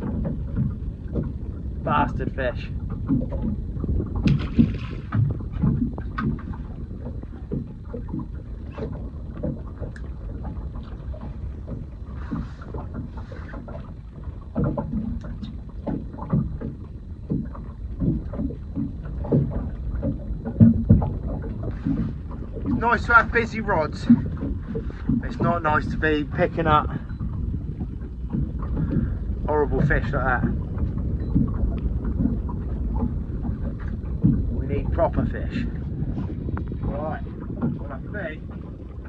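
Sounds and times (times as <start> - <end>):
steady low rumble: 0.0 - 39.0
fishing tackle knocks and clatter: 2.9 - 25.9.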